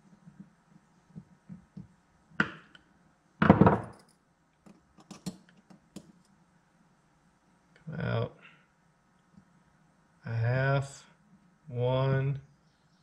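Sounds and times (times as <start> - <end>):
knock on workbench: 3.4 - 3.9
thud: 3.4 - 4.0
screwdriver clicks and taps: 4.7 - 6.2.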